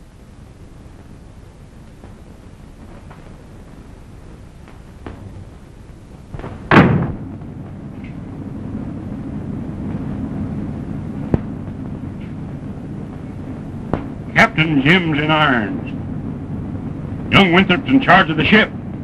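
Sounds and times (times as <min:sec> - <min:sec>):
steady low noise: 0:00.0 - 0:19.0
loud crash: 0:06.4 - 0:07.4.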